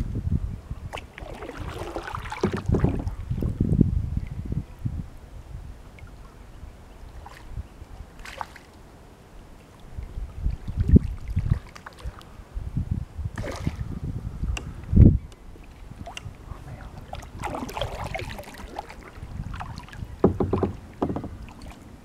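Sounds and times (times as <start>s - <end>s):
wind on microphone: 0.0s - 8.3s, 9.8s - 22.0s
low rumbling thumps: 2.2s - 4.6s, 19.2s - 21.6s.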